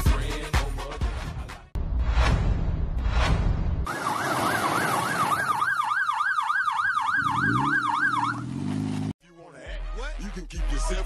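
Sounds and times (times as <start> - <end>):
electronic siren yelping: 3.9 - 8.6.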